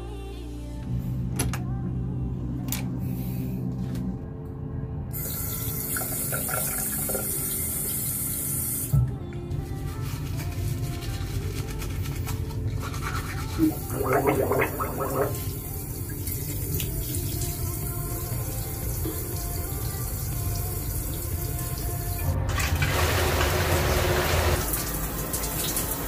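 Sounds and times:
toothbrush scrubbing teeth: 9.8 - 15.4.

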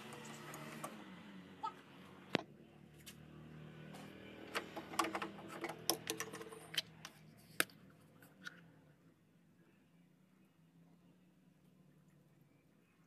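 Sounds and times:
faint steady hum: 4.9 - 13.0.

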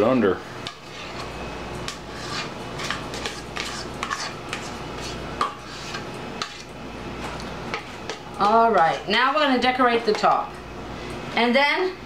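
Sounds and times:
spoon scraping a metal bowl: 0.6 - 6.8.

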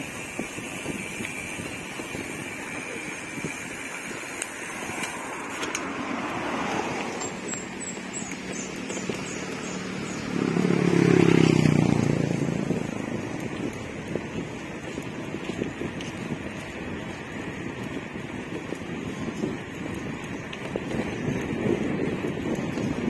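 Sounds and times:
road and wind noise: 0.0 - 23.0
vehicle engine passing: 4.1 - 14.2.

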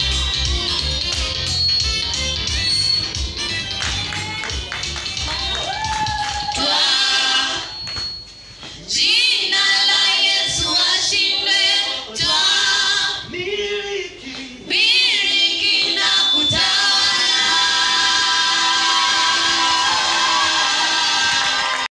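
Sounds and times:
high cries: 1.5 - 8.2
choir singing over loudspeakers: 6.6 - 7.8, 8.9 - 21.8.

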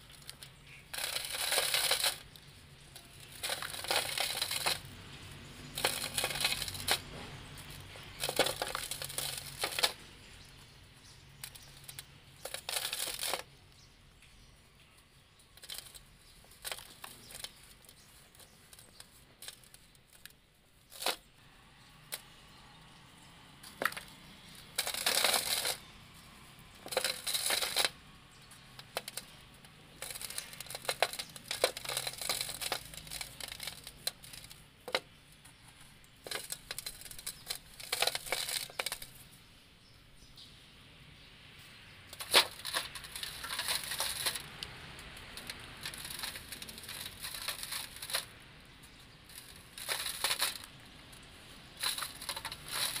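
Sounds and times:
sand cement crumbling in hands: 0.0 - 10.8, 23.6 - 35.2, 42.2 - 53.0
dry powder trickling: 0.0 - 39.4, 41.6 - 53.0.

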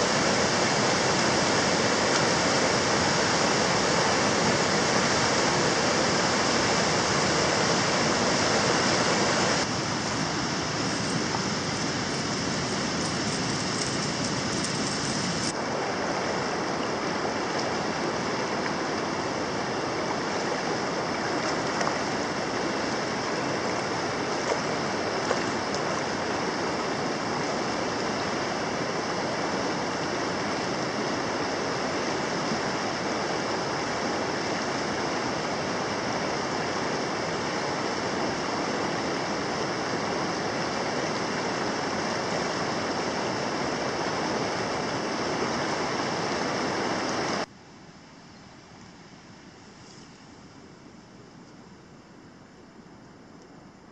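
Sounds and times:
river water flowing: 0.0 - 49.8.

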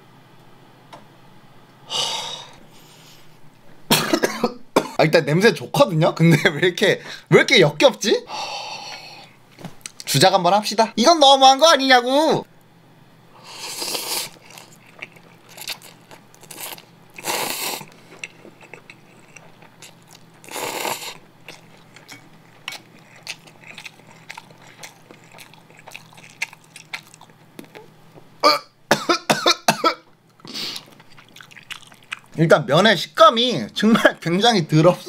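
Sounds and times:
person coughing and gagging: 3.9 - 5.0, 28.4 - 30.1
person slurping noodles: 13.4 - 14.8, 15.5 - 18.0, 20.4 - 21.2
wet chewing clicks: 14.3 - 27.9, 30.3 - 32.4.

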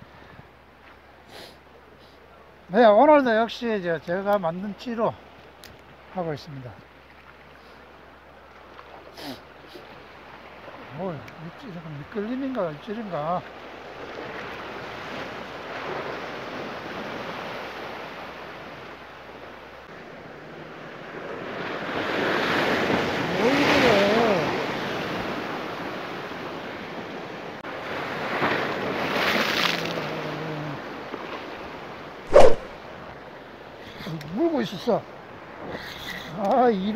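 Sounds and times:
sharp knock: 32.3 - 32.7.

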